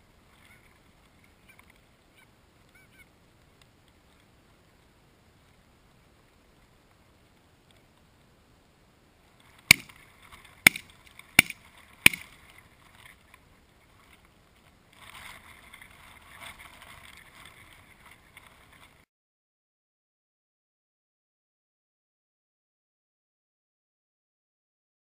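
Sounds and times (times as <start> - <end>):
faint rough noise: 0.0 - 19.0
shotgun shots: 9.7 - 9.9, 11.4 - 12.3.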